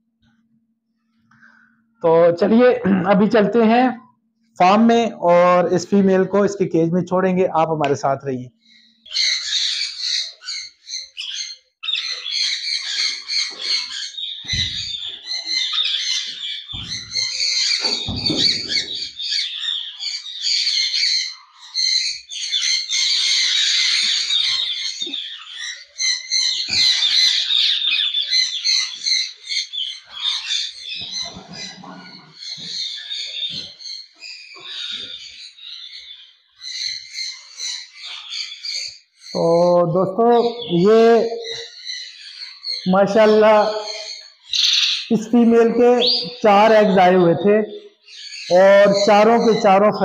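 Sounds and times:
caged birds chattering and squawking: 0.2s - 50.0s.

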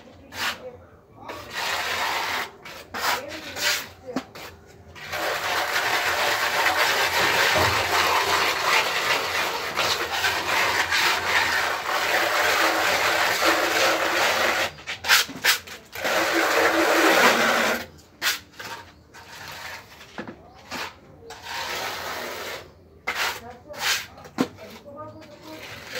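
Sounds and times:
float scraping on render: 0.0s - 25.9s.

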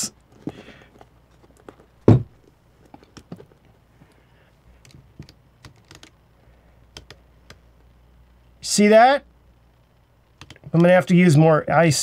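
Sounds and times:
louder thump: 2.0s - 2.4s.

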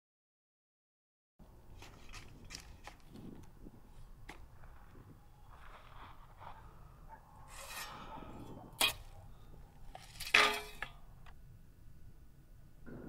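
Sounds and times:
object dropping onto stony ground: 9.8s - 11.4s.

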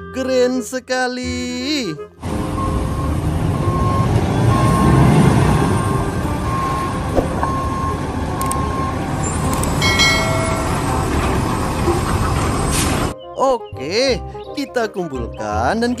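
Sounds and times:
diesel truck engine rumbling: 2.2s - 13.2s
reversing alarm beeping: 2.4s - 12.8s
high squeal: 9.1s - 13.2s.

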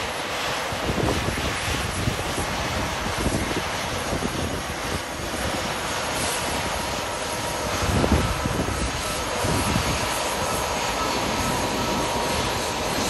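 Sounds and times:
jet engines idling: 0.0s - 13.0s
faint steady whine: 6.2s - 13.0s.

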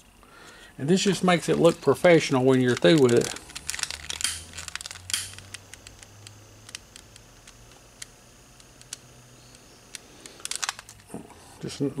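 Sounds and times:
wire being handled: 1.2s - 7.8s, 8.6s - 11.2s
hand tools clicking: 1.5s - 7.3s.

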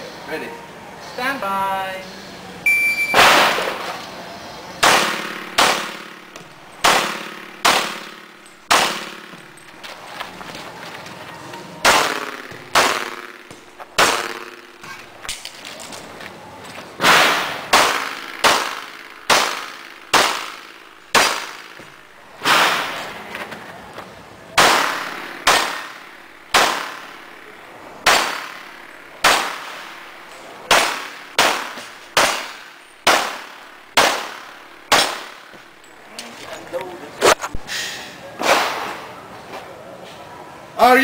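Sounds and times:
shot timer beep: 2.6s - 3.3s
pistol shots with echo: 3.1s - 3.9s, 4.8s - 9.6s, 11.8s - 14.9s, 17.0s - 21.8s, 24.6s - 35.6s.

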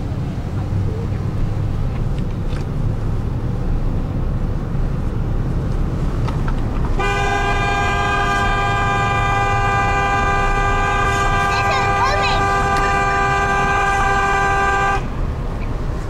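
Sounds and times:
car cabin road rumble: 0.0s - 16.0s
car horn blast: 7.0s - 15.1s.

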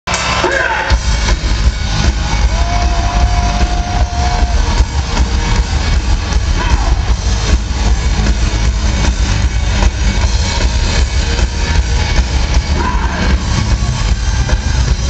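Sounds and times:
heavy metal band playing live: 0.1s - 15.0s.

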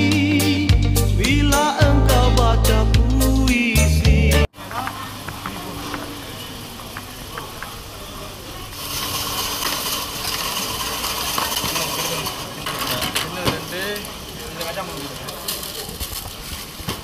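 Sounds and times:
steady bustle noise: 4.5s - 17.0s.

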